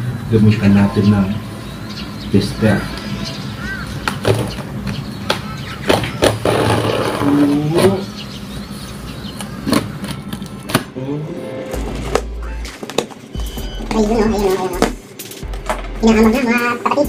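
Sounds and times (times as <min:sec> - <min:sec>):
tape and cardboard scraping: 0:05.9 - 0:08.0.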